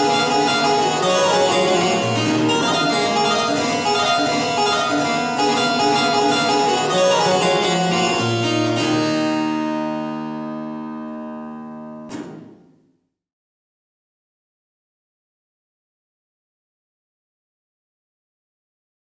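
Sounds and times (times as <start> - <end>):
harpsichord playing: 0.0 - 12.1.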